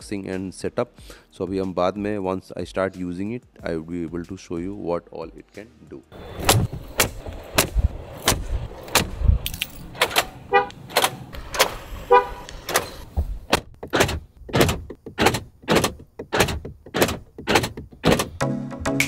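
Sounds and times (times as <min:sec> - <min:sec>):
car horn toots: 0:10.5 - 0:10.8, 0:12.0 - 0:12.5.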